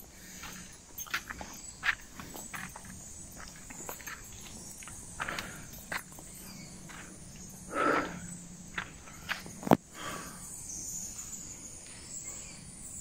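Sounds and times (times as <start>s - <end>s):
footsteps on stony dirt path: 0.0s - 10.4s
insects chirring: 0.0s - 13.0s.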